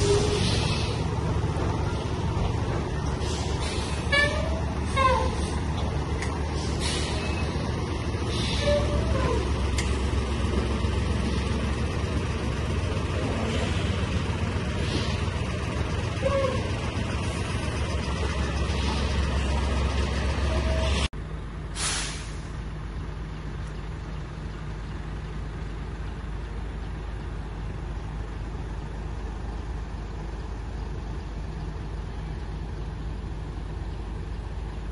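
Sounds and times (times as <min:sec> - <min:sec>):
air brake hiss: 0:00.0 - 0:01.1, 0:03.2 - 0:05.7, 0:06.5 - 0:07.6, 0:08.2 - 0:09.0, 0:14.7 - 0:15.3, 0:21.7 - 0:22.5
diesel truck engine idling: 0:00.0 - 0:34.9
idling trucks low rumble: 0:00.0 - 0:34.9.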